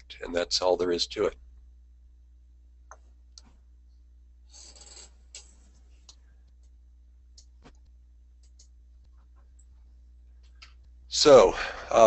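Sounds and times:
low steady hum: 0.0 - 12.0
faint clicks: 5.3 - 9.7, 10.4 - 11.0.

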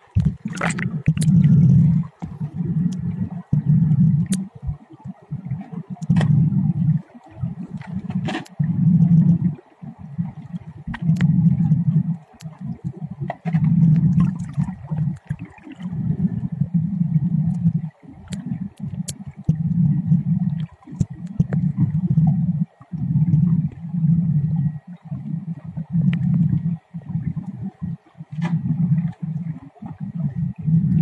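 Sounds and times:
underwater gurgling and rumbling: 0.0 - 31.0.

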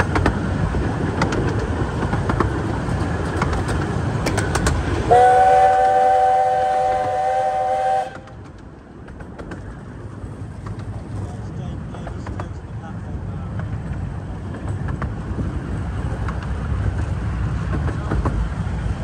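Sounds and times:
steam locomotive whistle: 5.0 - 8.4.

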